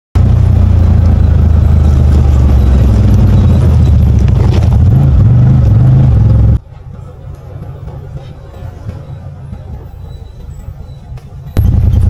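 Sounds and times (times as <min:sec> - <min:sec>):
engine running loud: 0:00.2 - 0:06.6, 0:11.6 - 0:12.0.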